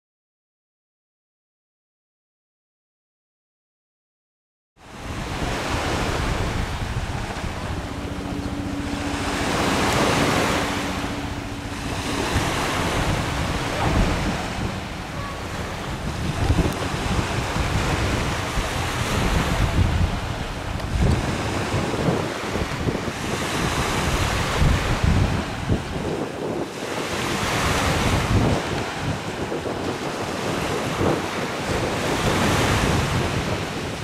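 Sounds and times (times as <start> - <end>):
wind buffeting microphone: 4.8 - 34.0.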